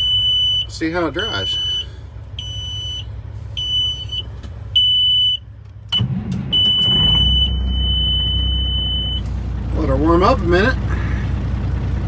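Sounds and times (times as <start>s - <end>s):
dash warning buzzer beeping: 0.0s - 9.3s
diesel engine cranking and idling: 0.0s - 12.0s.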